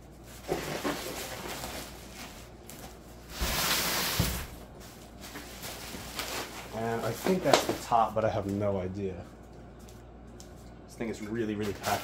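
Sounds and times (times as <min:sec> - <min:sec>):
packing material rustling: 0:00.1 - 0:08.0, 0:11.6 - 0:12.0.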